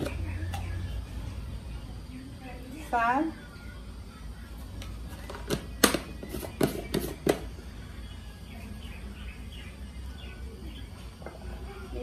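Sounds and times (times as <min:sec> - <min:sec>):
faint high chirps: 0:03.3 - 0:12.0.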